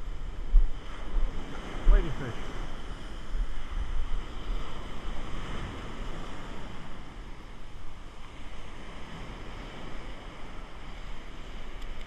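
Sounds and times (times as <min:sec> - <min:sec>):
surf breaking on beach: 0:00.0 - 0:12.0
wind buffeting microphone: 0:00.0 - 0:12.0.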